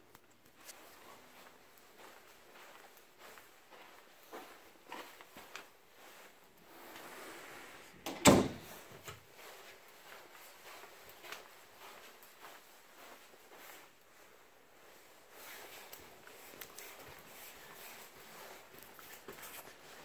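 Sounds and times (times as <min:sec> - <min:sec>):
loud thump: 0:08.1 - 0:08.7.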